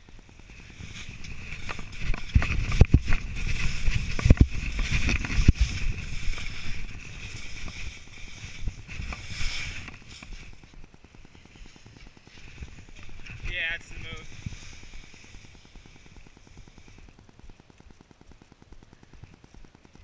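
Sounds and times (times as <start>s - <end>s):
wind buffeting microphone: 0.0s - 11.0s
skis scraping over snow: 0.0s - 17.5s.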